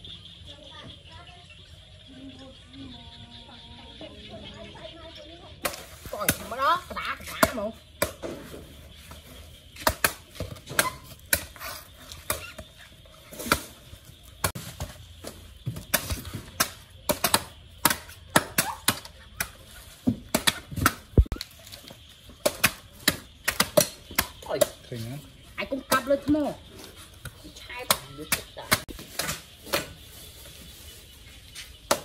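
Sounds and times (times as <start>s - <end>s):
knife chopping coconut husks: 5.6s - 9.2s, 9.8s - 12.7s, 14.4s - 21.5s, 22.4s - 24.9s, 27.2s - 30.0s, 31.8s - 32.0s.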